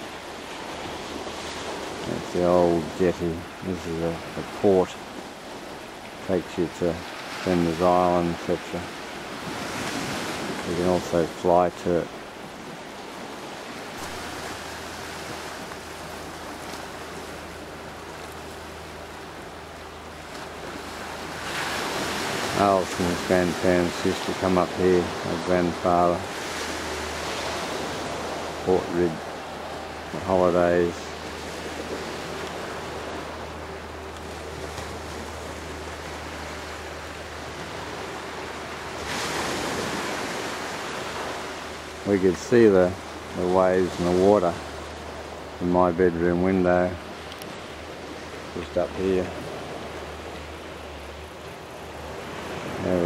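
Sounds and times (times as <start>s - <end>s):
small waves on rocky shore: 0.0s - 53.0s
wind: 0.0s - 53.0s
low steady hum: 13.6s - 53.0s.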